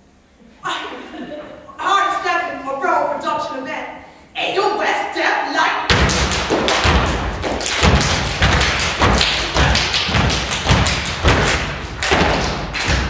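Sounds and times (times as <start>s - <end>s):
stomps and claps: 5.9s - 13.0s.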